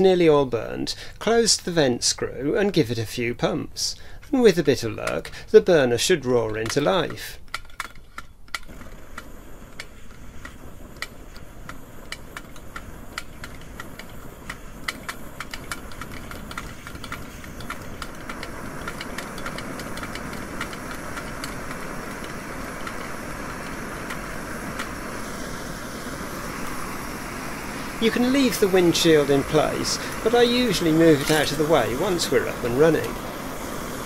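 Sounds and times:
stove burner rushing: 4.1s - 34.0s
hand pump clicking: 12.1s - 23.1s.

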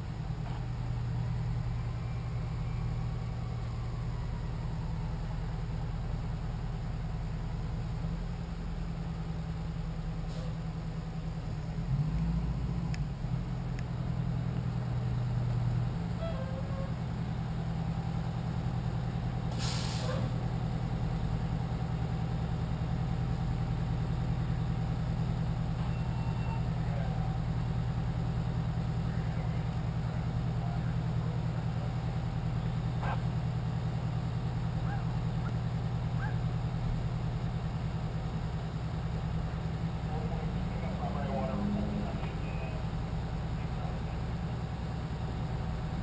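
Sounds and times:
diesel engine idling: 0.0s - 46.0s
air hiss: 19.5s - 20.3s.

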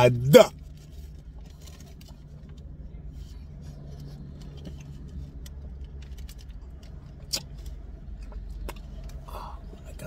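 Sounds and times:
car engine idling: 0.0s - 10.0s.

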